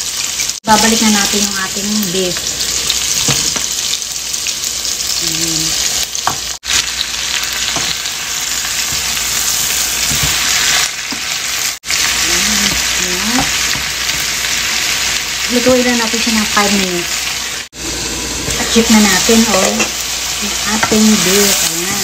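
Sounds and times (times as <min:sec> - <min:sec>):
food sizzling in a wok: 0:00.0 - 0:22.0
spatula scraping wok: 0:17.2 - 0:22.0.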